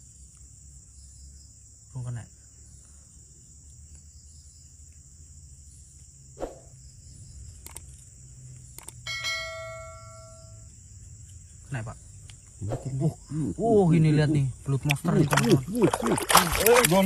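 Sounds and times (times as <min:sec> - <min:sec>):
crickets chirring: 0:00.0 - 0:17.0
sharp clicks: 0:07.6 - 0:07.9, 0:08.6 - 0:09.0
notification bell ding: 0:09.1 - 0:10.6.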